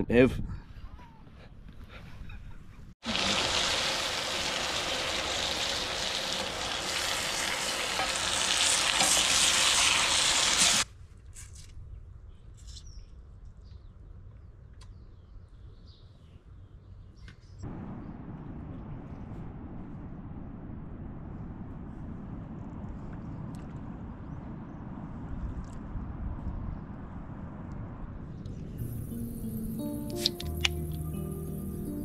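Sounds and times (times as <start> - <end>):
faint outdoor sound: 0.0 - 32.0
food sizzling in frying pan: 3.0 - 10.8.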